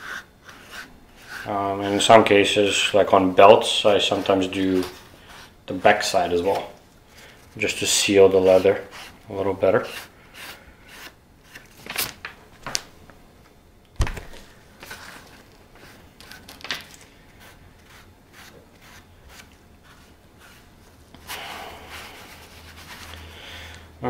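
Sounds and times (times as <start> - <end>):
cloth rubbing leather: 17.3 - 23.2.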